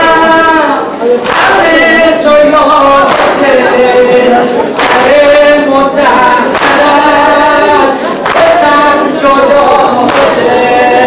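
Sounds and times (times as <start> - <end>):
crowd singing in unison: 0.0 - 11.0
sharp slaps: 1.2 - 1.7, 3.0 - 3.6, 4.8 - 5.2, 6.5 - 7.1, 8.2 - 8.8, 10.0 - 10.5.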